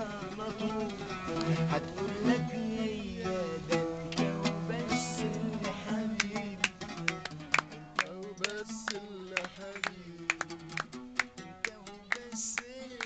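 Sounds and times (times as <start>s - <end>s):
person singing: 0.0s - 7.3s, 8.0s - 13.0s
oud playing: 0.0s - 13.0s
hand claps: 6.2s - 13.0s.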